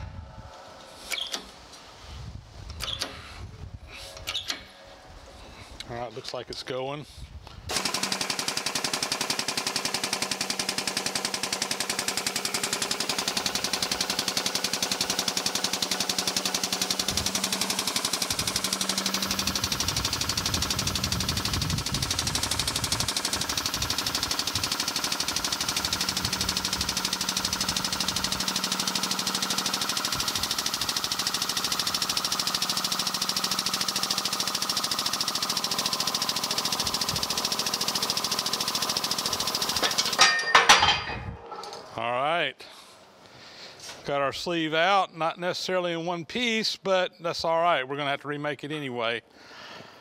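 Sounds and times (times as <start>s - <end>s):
air pump chattering: 1.0s - 1.6s, 2.7s - 4.8s, 7.7s - 40.8s.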